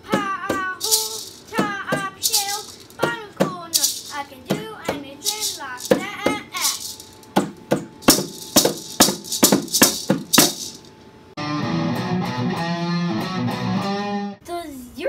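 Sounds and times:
maraca shaking: 0:00.0 - 0:10.9
bongos slapped: 0:05.8 - 0:10.8
short guitar music sting: 0:11.4 - 0:14.4.

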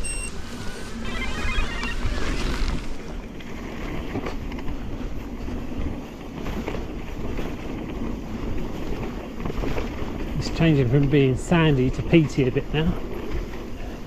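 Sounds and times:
bike knocks and rattles: 0:02.8 - 0:13.8.

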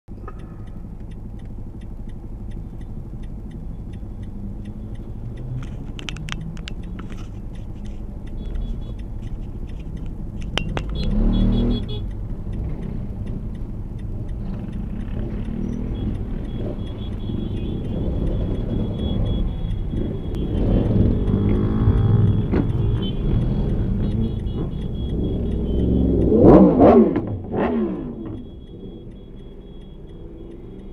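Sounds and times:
light clicks: 0:00.1 - 0:11.1
car engine hum: 0:00.1 - 0:30.9
vehicle pulling away: 0:10.9 - 0:11.8, 0:14.2 - 0:30.9.

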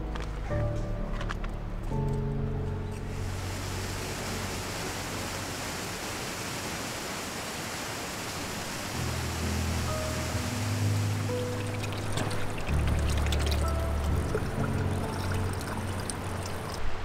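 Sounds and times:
background music: 0:00.0 - 0:05.6, 0:08.9 - 0:17.0
flowing water rushing: 0:03.2 - 0:17.0.

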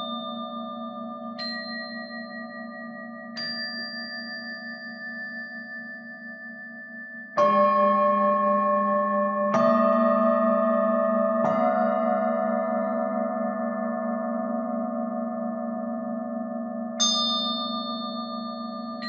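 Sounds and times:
resonant metal percussion strikes: 0:00.0 - 0:06.1, 0:07.2 - 0:19.0.

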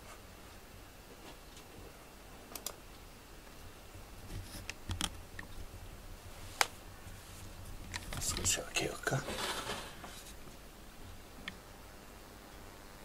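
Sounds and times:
sharp clicks: 0:02.5 - 0:02.8.

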